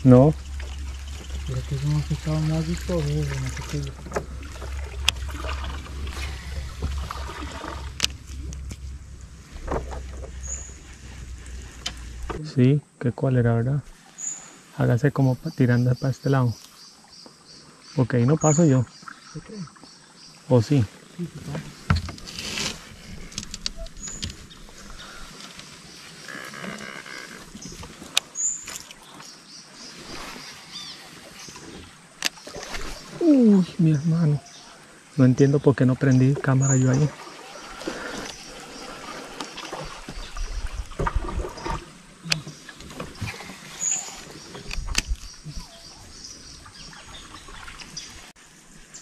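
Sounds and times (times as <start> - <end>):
handling noise in a boat: 0.0 - 12.4, 21.2 - 33.6, 36.3 - 48.9
muffled thumps: 3.5 - 12.4.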